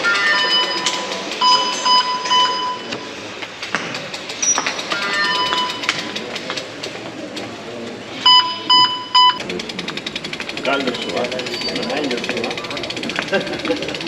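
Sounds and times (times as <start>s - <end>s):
electronic beeps: 0.0s - 3.2s, 4.4s - 6.1s, 8.2s - 9.5s
rapid ticking: 9.1s - 14.0s.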